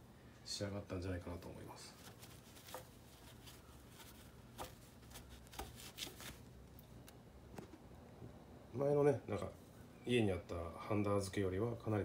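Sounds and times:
low steady hum: 0.0 - 12.0
cloth rubbing on metal: 1.7 - 6.6
light scuffs and taps: 1.9 - 6.4.

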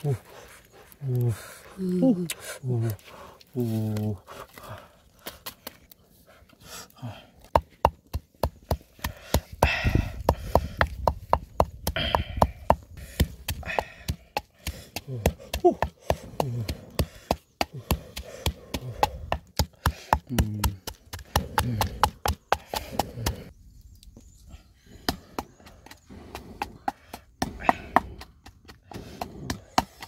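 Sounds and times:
pestle pounding in mortar: 7.5 - 23.4, 26.6 - 30.0.

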